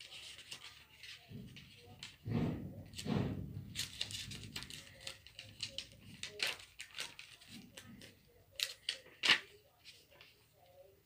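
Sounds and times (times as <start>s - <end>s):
paper pages turning: 0.0s - 2.2s, 3.7s - 11.0s.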